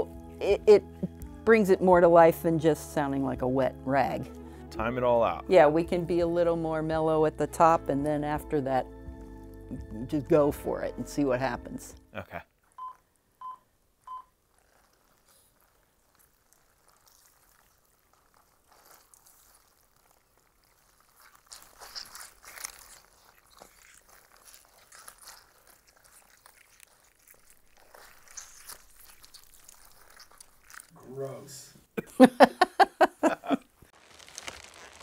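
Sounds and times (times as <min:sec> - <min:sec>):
short beeps: 0:12.8 - 0:14.3
wet cloth squelching: 0:14.1 - 0:31.0, 0:33.9 - 0:35.0.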